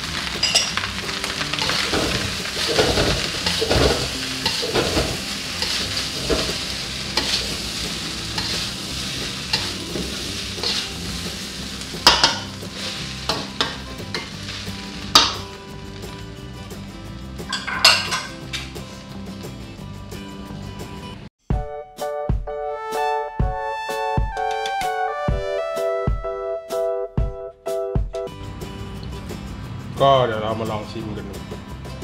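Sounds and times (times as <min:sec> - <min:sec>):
rice sizzling in a wok: 0:00.0 - 0:19.8
metal spatula scraping wok: 0:00.2 - 0:15.5
spatula knocking against wok: 0:12.0 - 0:12.5.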